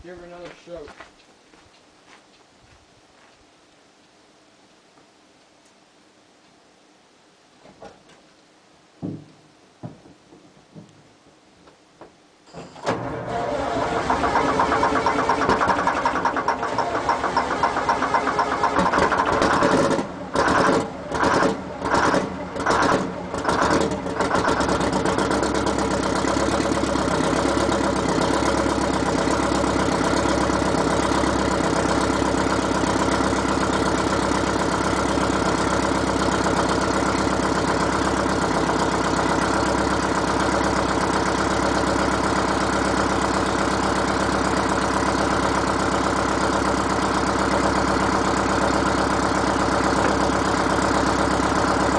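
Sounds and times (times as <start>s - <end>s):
diesel engine starting and idling: 12.5s - 51.9s.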